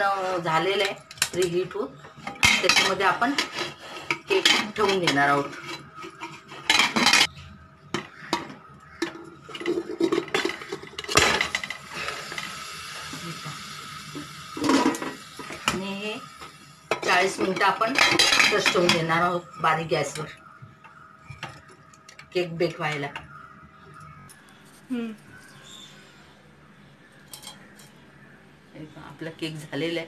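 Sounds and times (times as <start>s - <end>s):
metal tin knocking and scraping: 2.2s - 7.3s, 8.0s - 11.8s
pressure cooker hiss: 9.8s - 19.7s.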